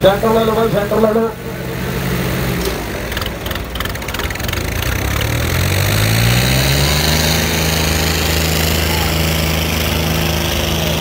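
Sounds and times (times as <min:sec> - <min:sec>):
diesel tractor engines revving: 0:00.0 - 0:11.0
rapid rattle: 0:03.1 - 0:05.5.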